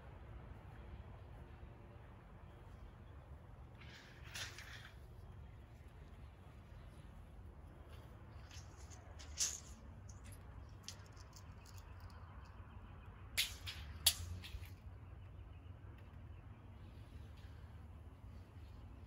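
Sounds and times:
low steady rumble: 0.0s - 19.0s
tape measure clicks: 8.4s - 12.2s, 13.4s - 14.8s.

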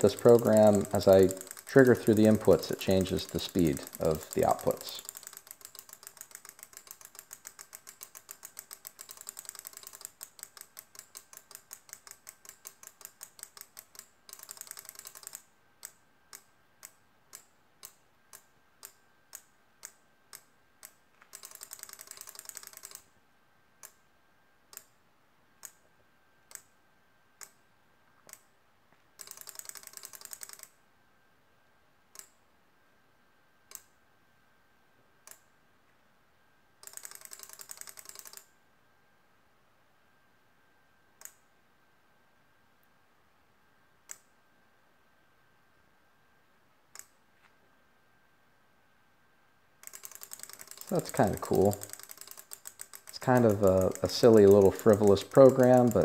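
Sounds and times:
relays clicking: 0.0s - 15.4s, 49.8s - 56.0s.

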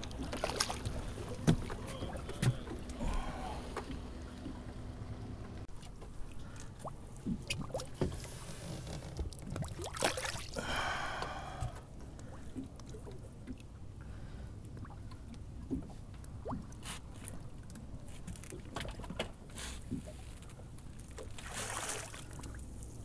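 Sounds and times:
steady low rumble: 0.0s - 7.3s
water splashing against boat: 0.0s - 23.0s.

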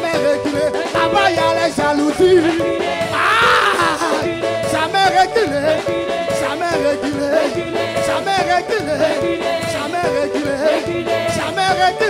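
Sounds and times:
gospel singing voices: 0.0s - 12.0s
rhythmic beat: 0.0s - 12.0s.

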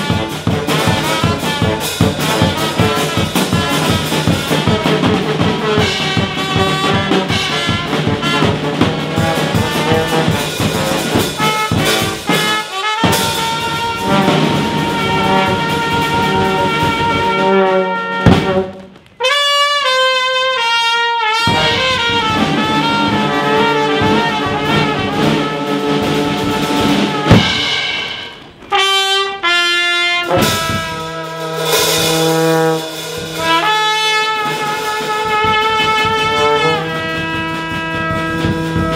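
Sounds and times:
brass band playing: 0.0s - 38.9s
horn line: 0.0s - 38.9s
loud bass drum hits: 18.2s - 18.8s, 21.5s - 29.0s, 30.2s - 33.7s, 34.5s - 38.9s.

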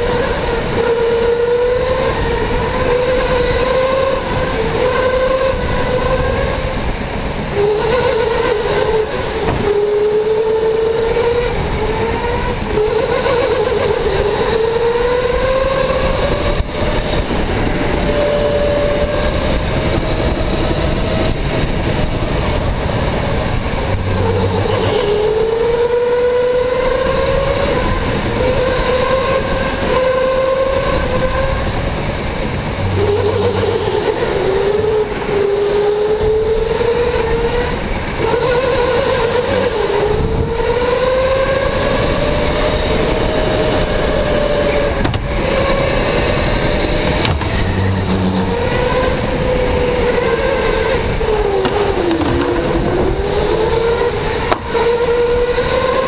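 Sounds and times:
electric go-kart motor whining: 0.0s - 56.0s
steady rushing noise: 31.1s - 36.7s.

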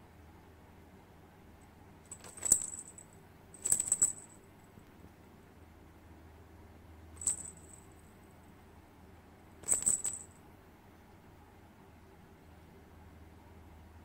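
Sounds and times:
small metal bells tinkling: 2.1s - 4.4s, 7.2s - 7.9s, 9.6s - 10.3s.

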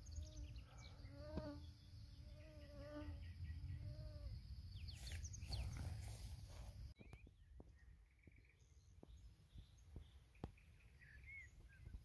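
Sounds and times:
bird chirps: 7.0s - 12.0s.

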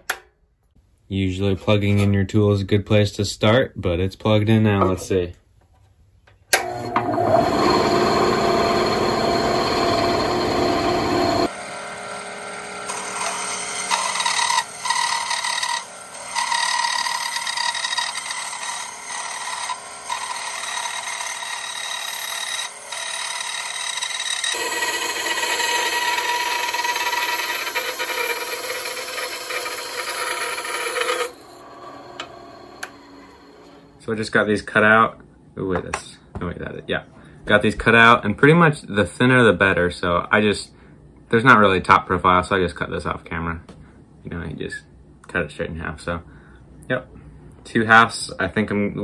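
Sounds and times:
bandsaw cutting wood: 6.6s - 33.9s.

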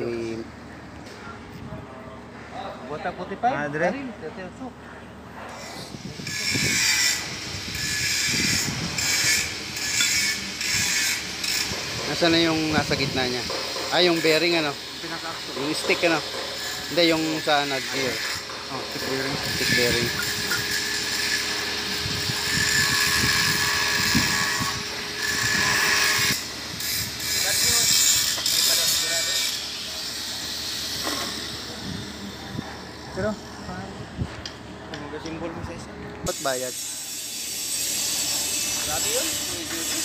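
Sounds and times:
hissing machine noise: 5.5s - 34.8s, 36.2s - 40.0s
hiss: 36.3s - 40.0s.

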